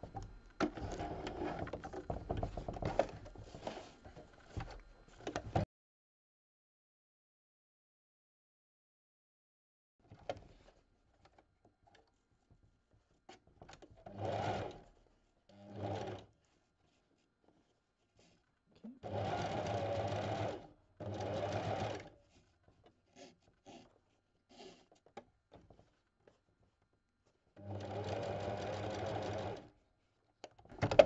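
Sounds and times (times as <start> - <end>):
sewing machine stitching: 0.6 - 3.8, 14.0 - 14.9, 15.5 - 16.3, 19.0 - 22.1, 27.6 - 29.7.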